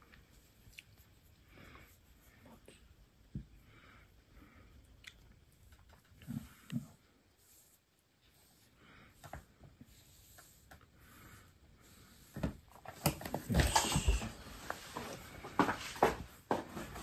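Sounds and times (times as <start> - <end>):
handling rustling and knocks: 12.3 - 17.0.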